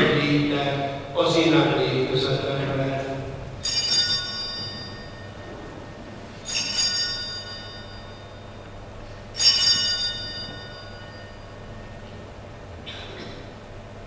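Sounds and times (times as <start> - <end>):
altar bells ringing: 3.6 - 12.1.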